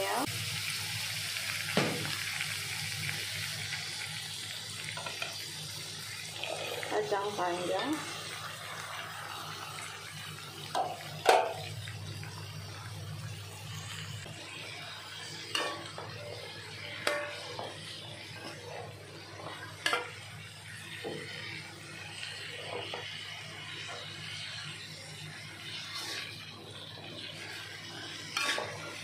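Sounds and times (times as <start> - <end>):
low sizzle of stir-frying: 0.0 - 29.0
metal spatula scraping a wok: 15.0 - 21.6, 23.8 - 26.6, 27.2 - 29.0.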